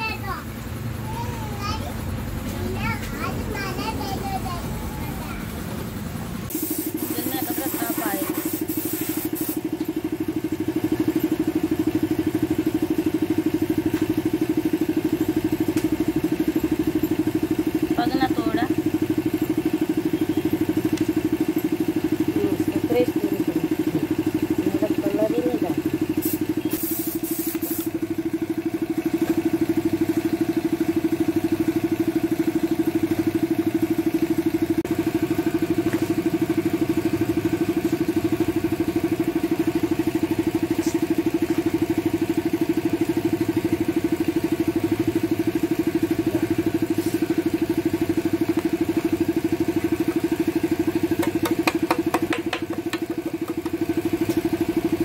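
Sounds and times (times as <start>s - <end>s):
engine running steadily: 0.0s - 55.0s
short high hiss: 6.5s - 9.6s, 26.2s - 28.0s.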